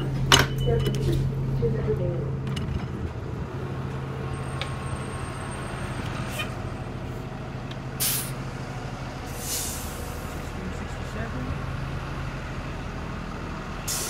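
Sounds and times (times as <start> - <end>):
bus engine hum: 0.0 - 14.0
compressed air hissing: 8.0 - 8.4, 9.4 - 10.0.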